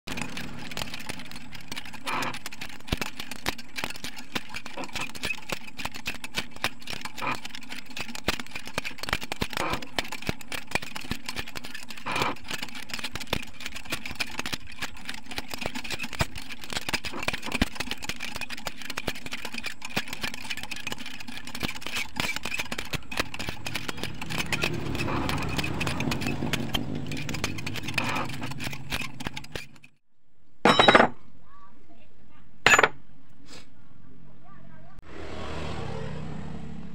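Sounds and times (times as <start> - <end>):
chain clicking and rattling: 0.1 - 30.0.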